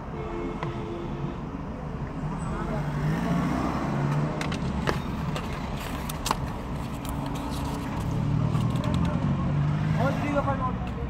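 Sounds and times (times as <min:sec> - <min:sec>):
paper rustling: 0:05.3 - 0:09.0.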